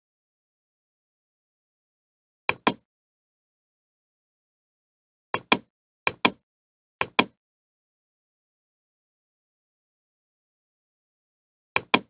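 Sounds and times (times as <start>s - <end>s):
mouse button clicks: 2.5s - 2.8s, 5.4s - 6.4s, 7.0s - 7.4s, 11.8s - 12.0s.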